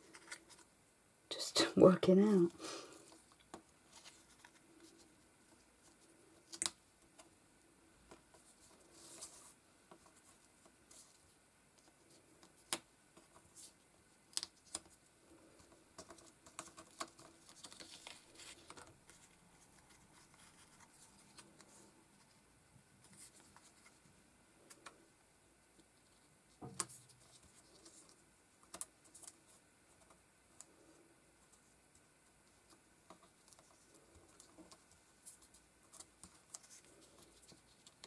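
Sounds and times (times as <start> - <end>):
jigsaw pieces tapping and sliding: 5.8 - 7.3, 14.3 - 21.8, 26.7 - 30.8, 31.4 - 38.0.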